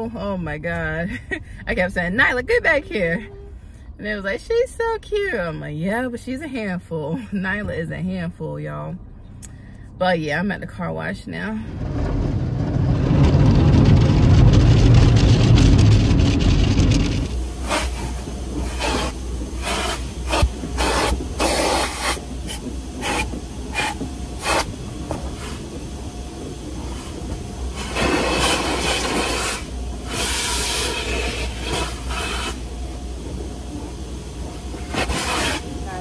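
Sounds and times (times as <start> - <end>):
steady low hum: 0.0 - 36.0
brushes scrubbing car body: 15.2 - 24.7, 34.7 - 36.0
spray hissing on car body: 17.6 - 24.7, 27.8 - 32.7, 34.8 - 36.0.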